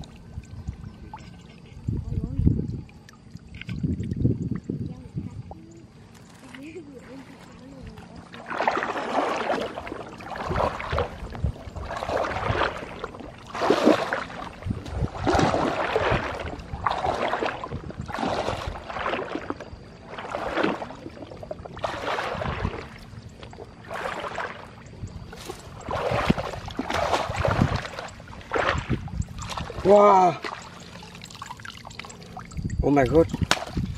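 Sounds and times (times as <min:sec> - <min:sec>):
footsteps wading through water: 0:06.1 - 0:33.9
reed stems swishing: 0:08.3 - 0:21.0, 0:23.8 - 0:32.3.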